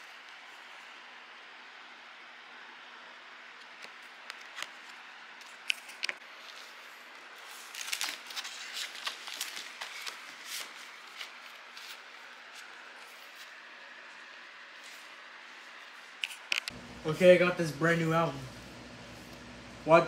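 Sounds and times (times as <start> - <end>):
paper packaging rustling: 3.6 - 16.7.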